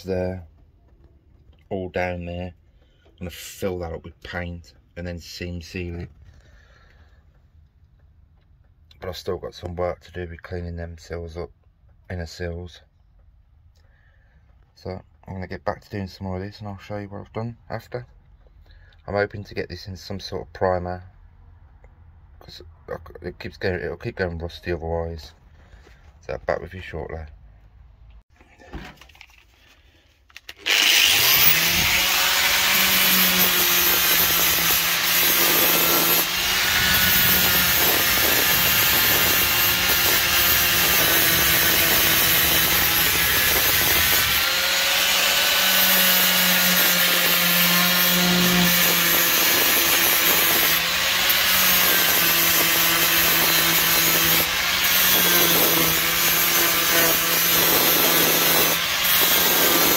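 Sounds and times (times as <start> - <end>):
angle grinder motor hum: 30.6 - 59.9.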